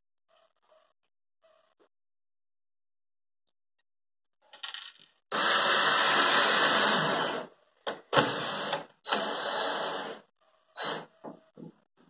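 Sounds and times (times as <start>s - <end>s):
drill driving screws: 5.3s - 7.5s, 8.1s - 10.2s, 10.8s - 11.1s.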